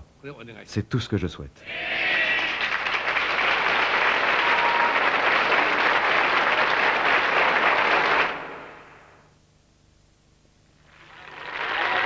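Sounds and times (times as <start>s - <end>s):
audience applauding: 2.3s - 9.1s, 10.9s - 12.0s.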